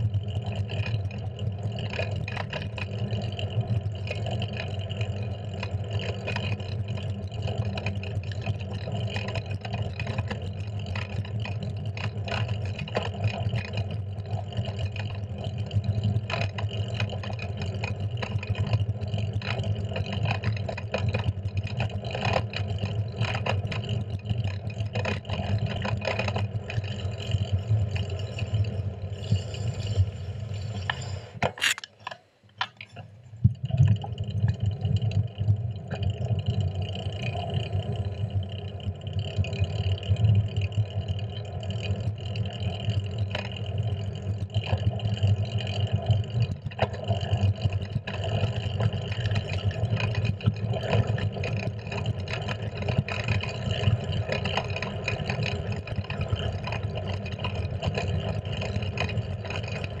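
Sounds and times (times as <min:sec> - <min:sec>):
sharp clicks: 0:31.4 - 0:33.0.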